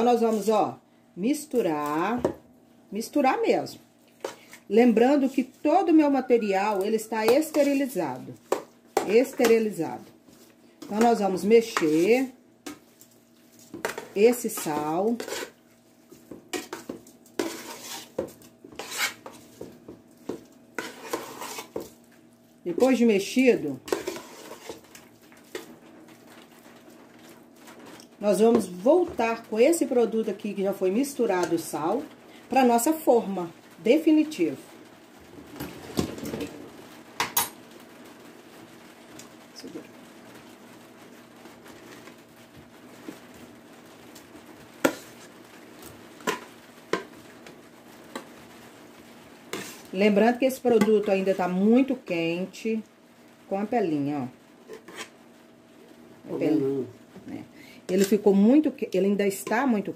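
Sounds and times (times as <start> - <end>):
metal spoon scraping metal pot: 13.8 - 15.6, 16.5 - 19.4, 20.8 - 21.8, 23.9 - 24.9.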